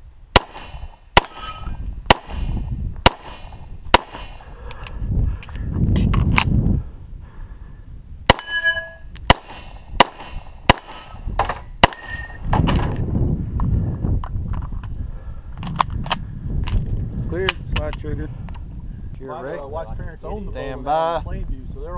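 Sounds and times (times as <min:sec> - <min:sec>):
low rumbling noise: 0:00.0 - 0:21.9
pistol shots: 0:00.4 - 0:04.4, 0:09.3 - 0:11.2
steel targets clanging: 0:08.3 - 0:09.1.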